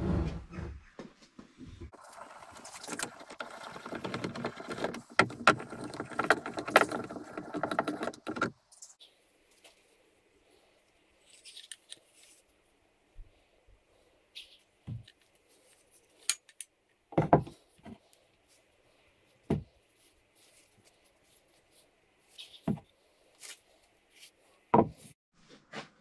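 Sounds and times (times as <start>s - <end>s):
metal vice parts knocking on wood: 3.0s - 8.5s.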